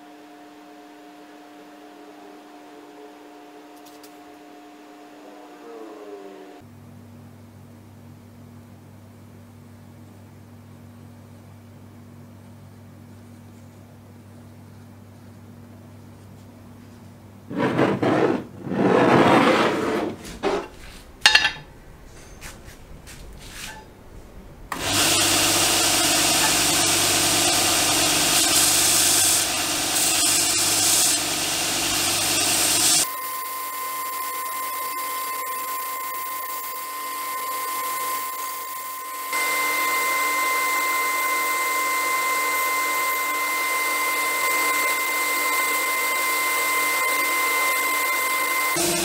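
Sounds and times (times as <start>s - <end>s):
rubbing and knocking: 17.5s - 23.9s
belt grinder high whine: 24.7s - 49.0s
belt sander grinding steel: 24.8s - 33.1s, 34.5s - 49.0s.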